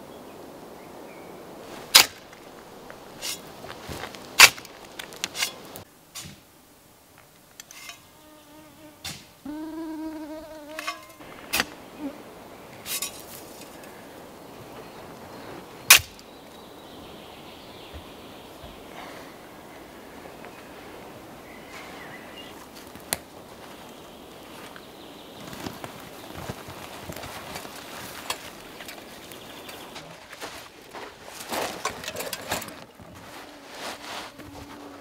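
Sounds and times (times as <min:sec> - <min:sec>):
faint outdoor hiss: 0:00.0 - 0:35.0
flying insect buzzing: 0:08.0 - 0:12.6, 0:33.4 - 0:35.0.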